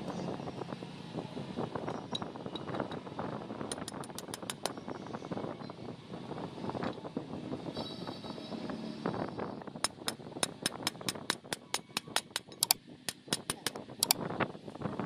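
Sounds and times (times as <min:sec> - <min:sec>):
ratchet wrench clicking: 0:03.7 - 0:04.8, 0:09.8 - 0:14.2.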